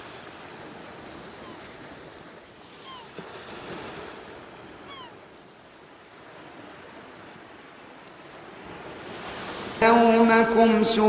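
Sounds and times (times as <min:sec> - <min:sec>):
ocean surf washing: 0:00.0 - 0:11.0.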